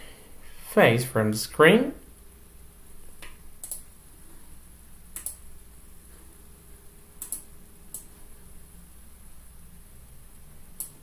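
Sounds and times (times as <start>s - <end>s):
computer mouse clicking: 3.2s - 3.9s, 5.1s - 5.4s, 7.2s - 8.1s, 10.8s - 11.0s.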